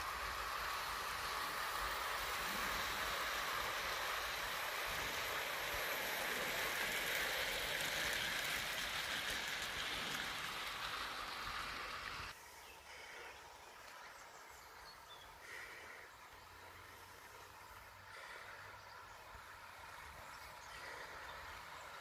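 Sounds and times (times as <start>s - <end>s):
model train wheels hissing on rail: 0.0s - 12.6s.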